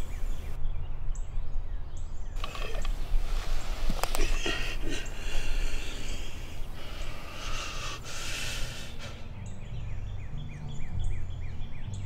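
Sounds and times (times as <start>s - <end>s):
steady hiss: 0.0s - 0.6s, 2.4s - 9.4s.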